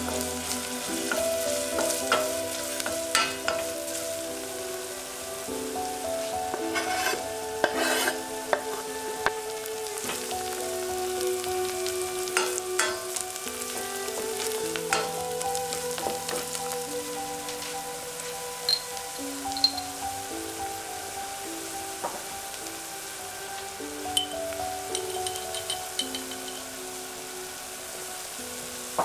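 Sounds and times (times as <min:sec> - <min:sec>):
wooden spoon scraping a pan: 0:00.0 - 0:04.2, 0:06.2 - 0:10.4, 0:12.3 - 0:16.8
onion sizzling in oil: 0:00.0 - 0:29.0.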